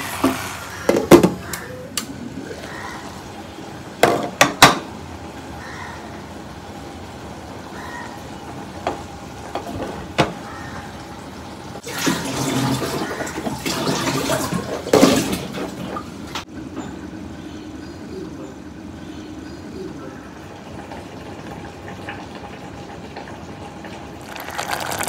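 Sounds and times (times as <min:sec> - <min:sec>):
water gushing: 0:00.0 - 0:00.9, 0:11.8 - 0:15.4, 0:24.2 - 0:25.0.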